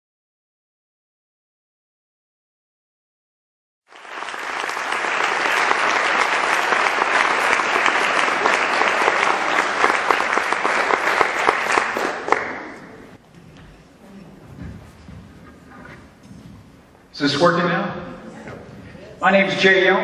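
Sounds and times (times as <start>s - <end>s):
audience applauding: 3.9s - 13.2s.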